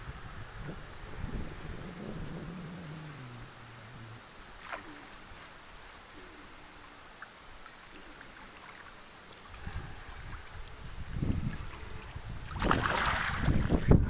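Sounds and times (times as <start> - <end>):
wind noise: 0.0 - 4.3, 9.5 - 14.0
wind buffeting microphone: 0.0 - 4.4, 9.5 - 14.0
fish splashing in water: 4.5 - 5.3, 11.4 - 13.9.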